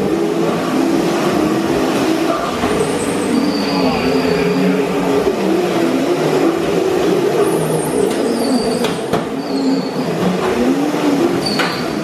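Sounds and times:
wheels skidding on concrete: 0:00.0 - 0:12.0
electric motors whining: 0:02.5 - 0:08.8.

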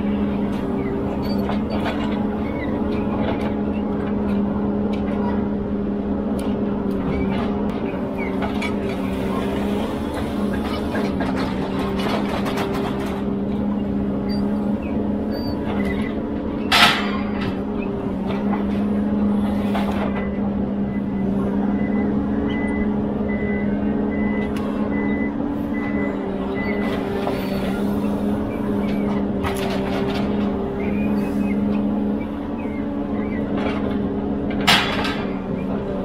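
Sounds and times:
diesel engine running: 0:00.0 - 0:36.0
reversing alarm beeping: 0:14.2 - 0:16.0, 0:20.2 - 0:29.3, 0:30.7 - 0:33.5.

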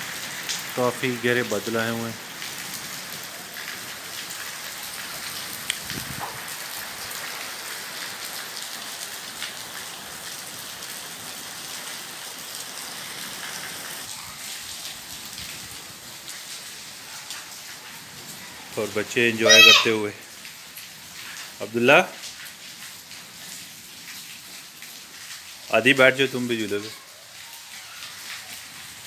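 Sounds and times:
heavy rain on concrete: 0:00.0 - 0:29.0.

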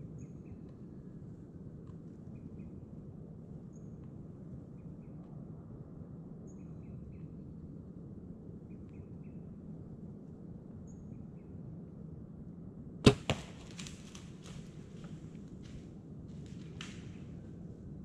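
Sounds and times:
faint bird chirps: 0:06.4 - 0:07.4, 0:10.8 - 0:11.6
arrow striking target: 0:13.0 - 0:14.2
bow string crack: 0:13.1 - 0:15.2, 0:16.4 - 0:17.4.

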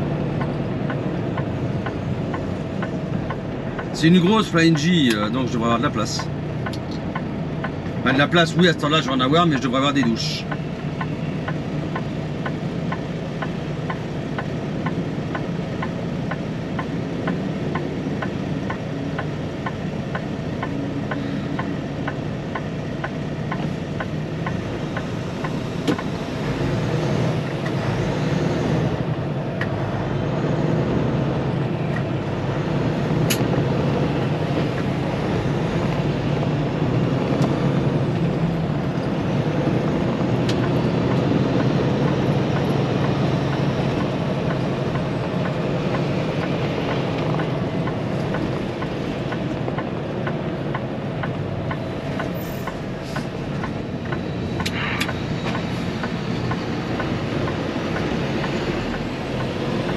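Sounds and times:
diesel truck engine running: 0:00.0 - 0:59.9
turn signal relay clicking: 0:00.4 - 0:26.2, 0:40.1 - 0:59.9.

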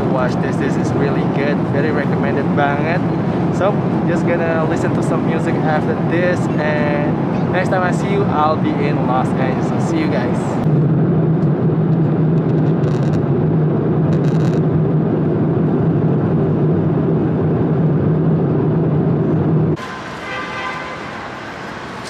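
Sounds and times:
airliner cabin engine rush: 0:00.0 - 0:22.0
outdoor traffic ambience: 0:00.0 - 0:22.0.

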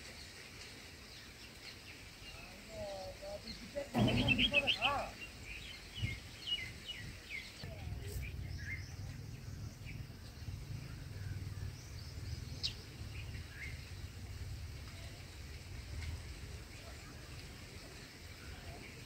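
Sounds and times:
birds chirping: 0:00.0 - 0:19.0
steady low rumble: 0:05.2 - 0:18.6.

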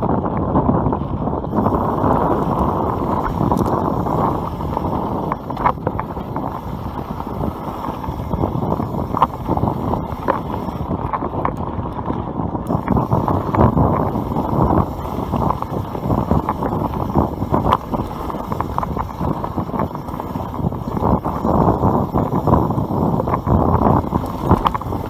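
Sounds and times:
bike rattling over bumps: 0:00.0 - 0:25.0
bike tyres on gravel: 0:00.0 - 0:25.0
wind rushing over microphone: 0:00.0 - 0:25.0.

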